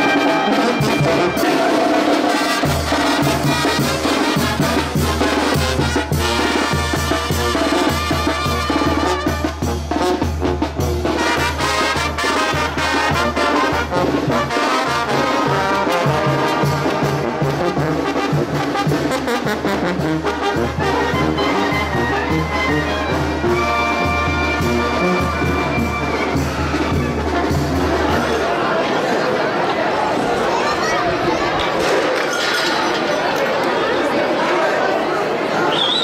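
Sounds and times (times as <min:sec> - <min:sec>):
marching brass band playing: 0:00.0 - 0:28.7.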